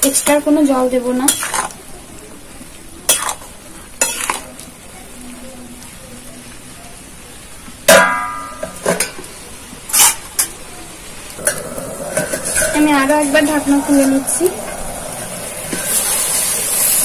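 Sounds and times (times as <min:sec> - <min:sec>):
faint sizzle: 0:00.0 - 0:17.0
spatula scraping a steel pan: 0:09.9 - 0:10.5.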